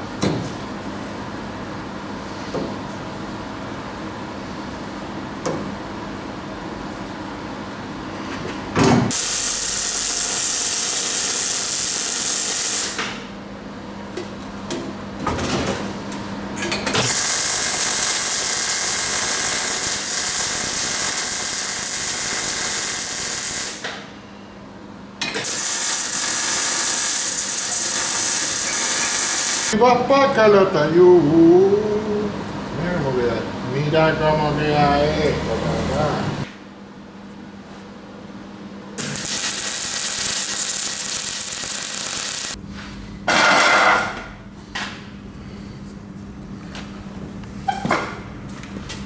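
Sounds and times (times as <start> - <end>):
welder arc crackling: 9.1 - 13.1, 17.0 - 23.9, 25.4 - 29.8, 39.0 - 42.6.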